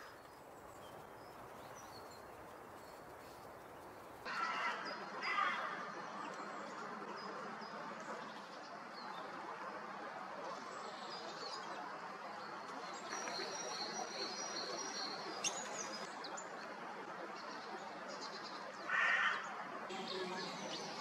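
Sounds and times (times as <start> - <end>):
small birds chirping: 0.0 - 5.4, 12.4 - 16.7
outdoor background hiss: 0.0 - 21.0.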